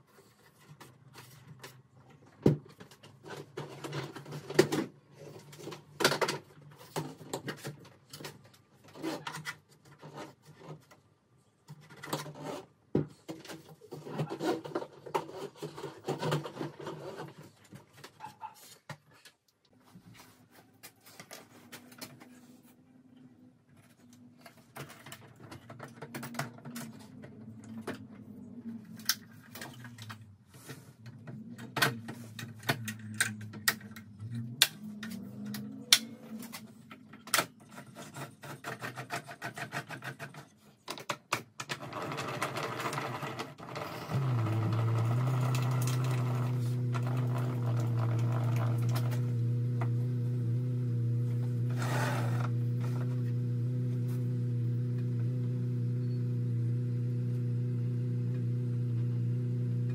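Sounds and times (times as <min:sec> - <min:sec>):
plastic and metal parts rattling: 0:00.3 - 0:19.4, 0:23.7 - 0:28.2, 0:28.9 - 0:49.3
low steady hum: 0:44.0 - 0:59.9.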